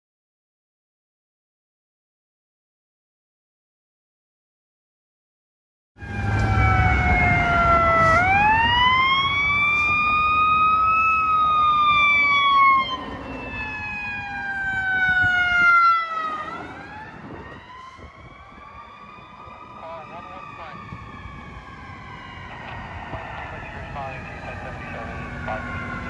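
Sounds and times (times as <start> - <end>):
fire engine siren wailing: 6.0 - 26.0
low traffic rumble: 6.0 - 26.0.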